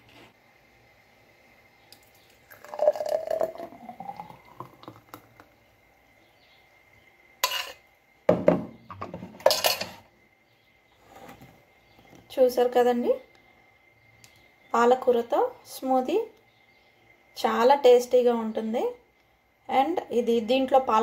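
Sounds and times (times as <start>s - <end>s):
smoothie pouring into glass: 2.0s - 5.6s.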